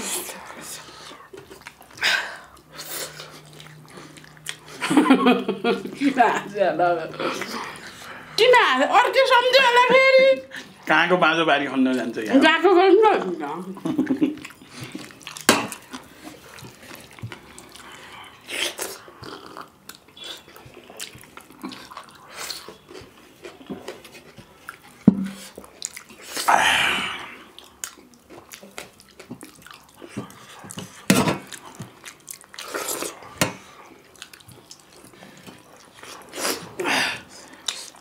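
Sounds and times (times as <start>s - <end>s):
wet smacking and slurping: 0.0s - 4.8s, 27.2s - 36.9s.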